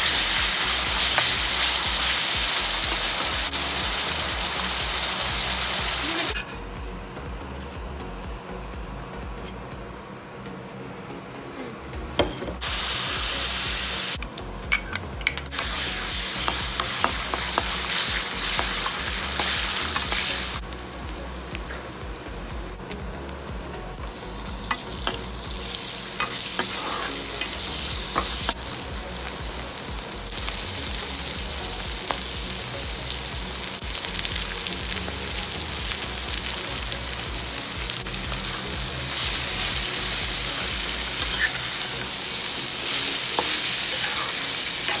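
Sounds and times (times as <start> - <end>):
food sizzling in a wok: 0.0 - 6.9, 12.6 - 45.0
spatula scraping a pan: 26.2 - 27.5, 41.2 - 41.8, 43.4 - 45.0.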